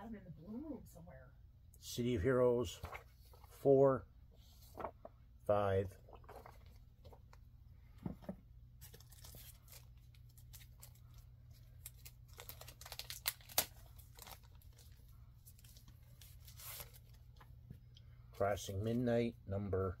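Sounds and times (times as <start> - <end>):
paper and plastic rustling: 4.4 - 5.1, 6.0 - 7.4, 8.0 - 17.5.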